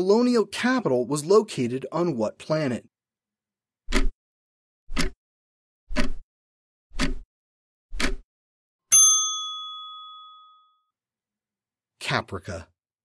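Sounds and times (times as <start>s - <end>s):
timer ticks: 7.0s - 7.2s, 8.0s - 8.2s
bright ding: 8.9s - 10.9s.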